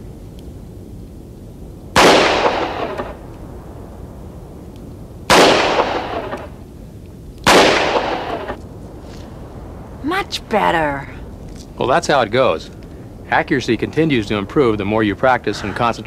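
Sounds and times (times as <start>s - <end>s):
revolver shots with echo: 2.0s - 3.2s, 5.3s - 6.5s, 7.5s - 8.6s.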